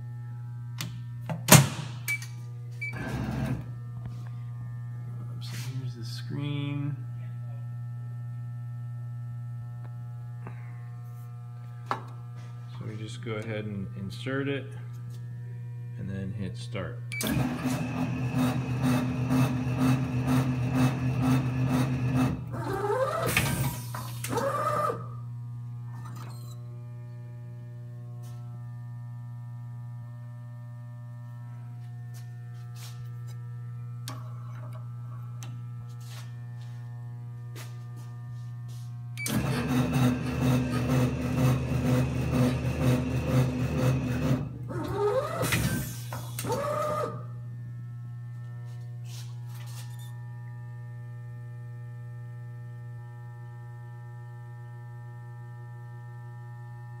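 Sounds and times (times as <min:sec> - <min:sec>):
electrical hum: 0:00.0 - 0:57.0
machine drive pulsing rattle: 0:39.2 - 0:47.1.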